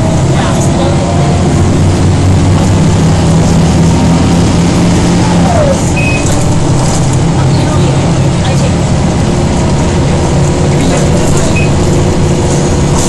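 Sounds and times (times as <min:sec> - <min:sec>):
bus diesel engine drone: 0:00.0 - 0:13.0
gearbox howl: 0:05.1 - 0:07.0.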